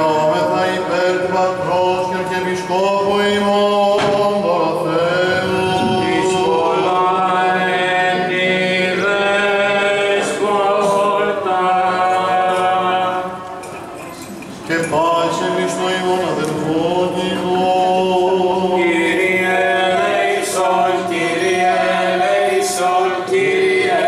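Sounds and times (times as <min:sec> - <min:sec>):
men chanting: 0:00.0 - 0:13.4, 0:14.7 - 0:24.0
held low drone note: 0:05.0 - 0:07.1.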